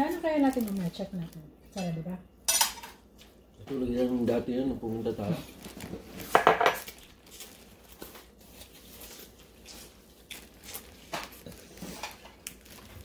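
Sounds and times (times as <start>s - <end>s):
person biting and chewing: 6.8s - 13.0s.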